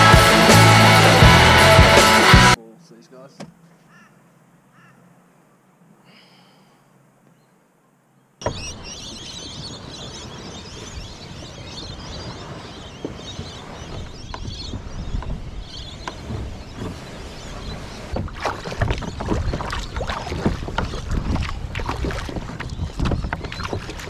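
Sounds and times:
wind buffeting microphone: 8.4 - 24.0.

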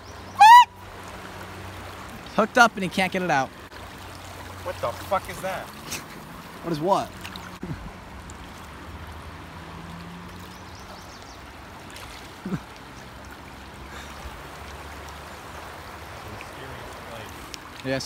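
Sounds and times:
river rapids rushing: 0.0 - 10.7.

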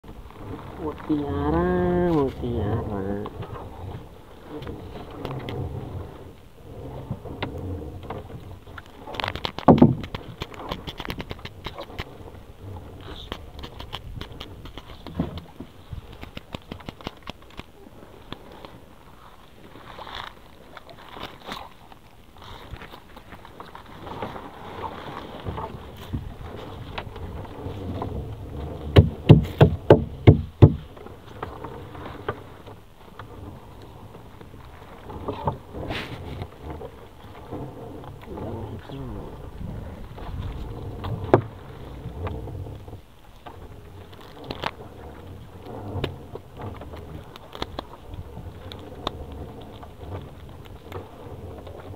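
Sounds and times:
small clicks: 8.8 - 12.1, 13.1 - 17.7
hard knocks on a boat: 9.7 - 10.1, 28.8 - 31.0
nylon net crackling and rustling: 15.7 - 29.6.

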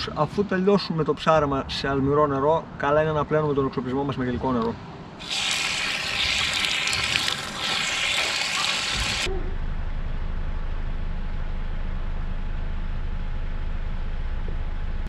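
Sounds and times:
water running from a tap: 5.2 - 9.3.

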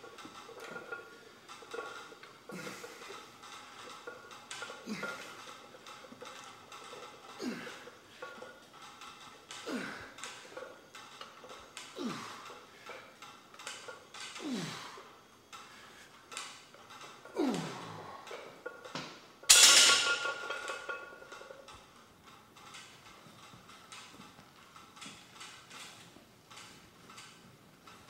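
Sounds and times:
strained groaning breaths: 1.6 - 18.9.

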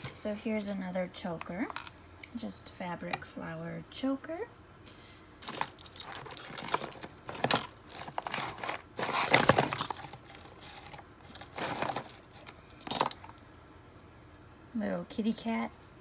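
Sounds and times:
jewelry jangling and clinking: 5.4 - 13.5.

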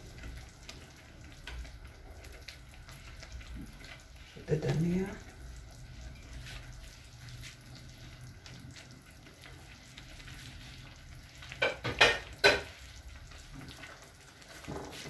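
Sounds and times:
stew bubbling and sizzling in a pan: 0.0 - 15.0
loud knocks on a pan: 11.6 - 12.7.

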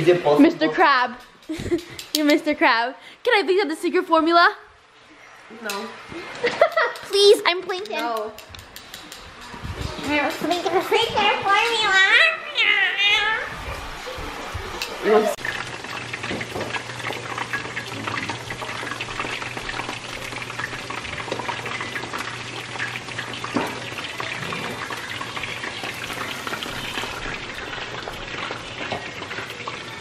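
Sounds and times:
sauce bubbling and popping: 14.3 - 29.9.

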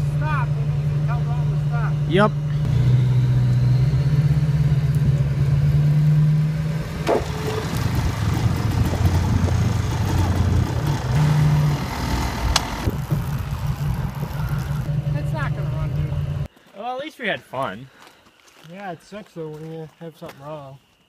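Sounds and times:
road noise: 0.0 - 16.5
vehicle engine running: 0.0 - 16.5
sharp clicks: 12.1 - 14.8.

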